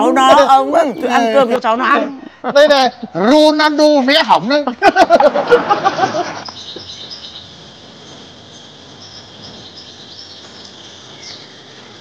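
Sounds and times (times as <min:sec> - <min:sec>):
person's voice: 0:00.0 - 0:02.3
birds chirping: 0:00.0 - 0:03.5, 0:06.2 - 0:12.0
insects chirping: 0:00.0 - 0:12.0.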